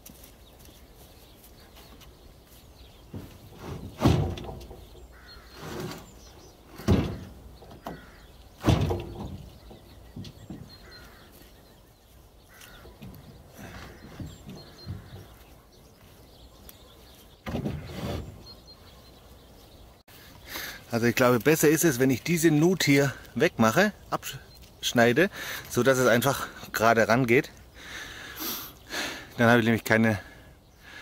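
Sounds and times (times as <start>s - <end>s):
light knocks and scrapes: 3.0s - 10.9s.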